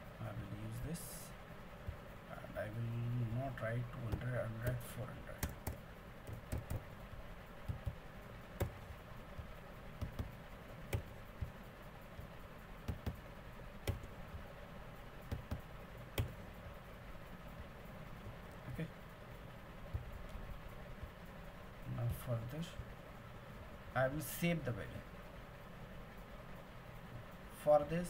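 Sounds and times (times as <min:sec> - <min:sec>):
faint low hum: 0:00.0 - 0:28.0
keyboard and mouse clicks: 0:05.4 - 0:06.9, 0:10.0 - 0:11.6, 0:12.9 - 0:13.2, 0:13.8 - 0:14.1, 0:16.2 - 0:16.4.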